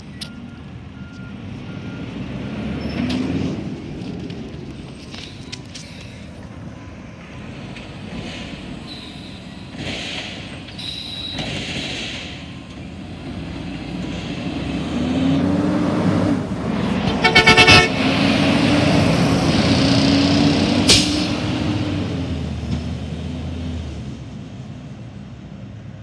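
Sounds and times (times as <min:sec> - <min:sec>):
truck horn toots: 0:17.0 - 0:18.1.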